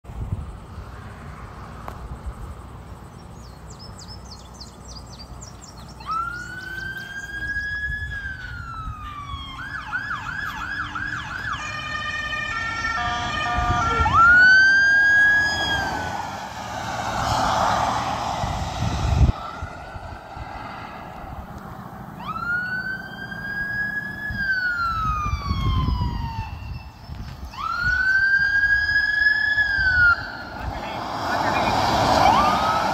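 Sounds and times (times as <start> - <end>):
police siren: 6.0 - 20.1, 22.1 - 32.9
loud rushing noise: 15.6 - 22.0.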